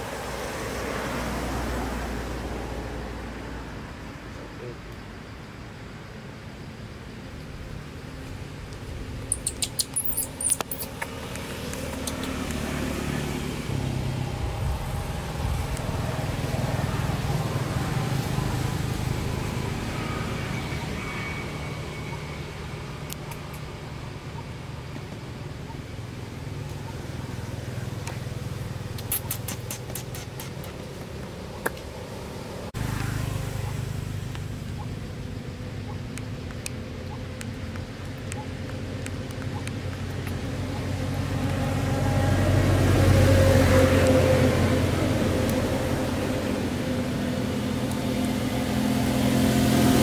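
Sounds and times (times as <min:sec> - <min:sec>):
vehicle engine humming: 0:00.0 - 0:50.0
sharp clicks: 0:09.2 - 0:12.6.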